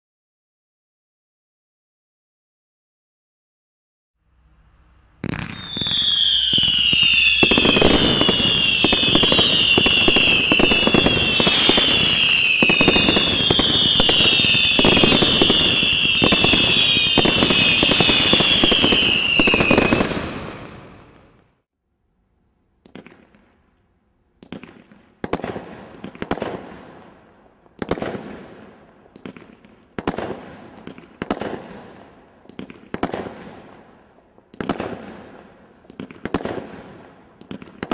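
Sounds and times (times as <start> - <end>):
fireworks sharp bangs: 4.5 - 21.5, 24.4 - 37.9
fireworks crackling: 4.6 - 21.4, 24.4 - 37.9
shrill whistle dipping in pitch: 5.2 - 20.1.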